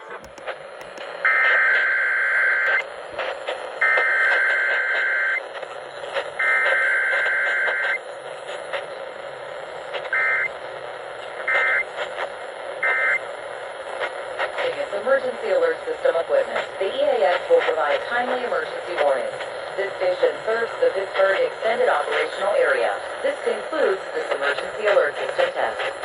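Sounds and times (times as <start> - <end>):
radio hiss: 0.0 - 26.0
harsh buzzing data bursts: 9.0 - 13.4.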